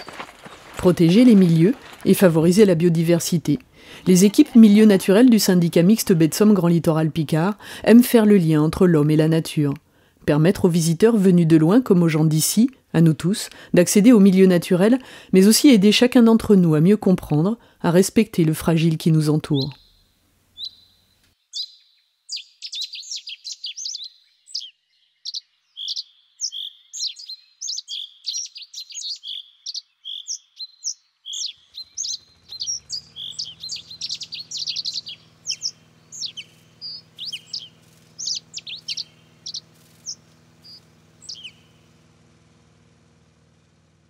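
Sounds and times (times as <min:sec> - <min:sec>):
low steady hum: 0:00.0 - 0:21.3, 0:32.2 - 0:44.0
small birds chirping: 0:00.0 - 0:43.2.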